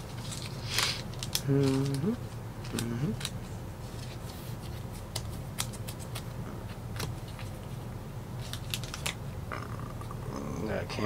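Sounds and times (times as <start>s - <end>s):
low steady hum: 0.0s - 11.0s
trading cards clicking and snapping: 0.2s - 3.4s, 4.9s - 7.6s, 8.4s - 9.2s.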